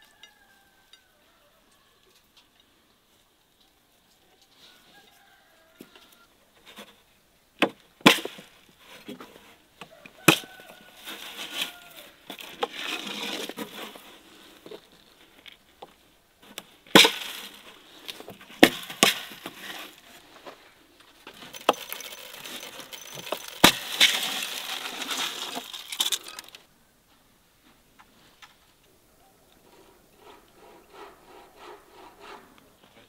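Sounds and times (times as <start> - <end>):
glass jars knocking on wood: 21.4 - 26.4
grain spilling onto wooden tray: 21.4 - 26.6.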